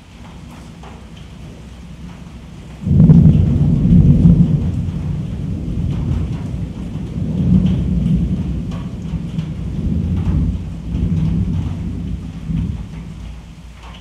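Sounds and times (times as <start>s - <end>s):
steady rain: 0.0s - 14.0s
thunder rumbling: 0.0s - 14.0s.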